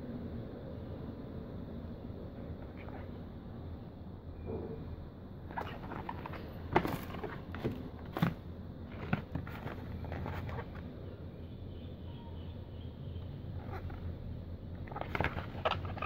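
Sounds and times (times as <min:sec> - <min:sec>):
cardboard box handled: 0:05.5 - 0:10.8, 0:14.8 - 0:16.0.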